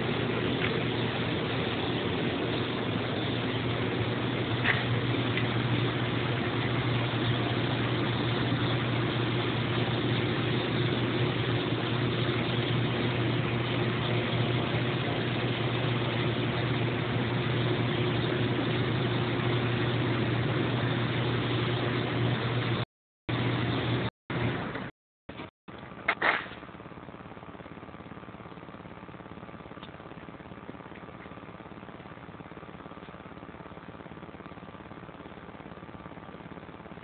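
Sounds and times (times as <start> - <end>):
small gasoline engine running steadily: 0.0 - 25.4.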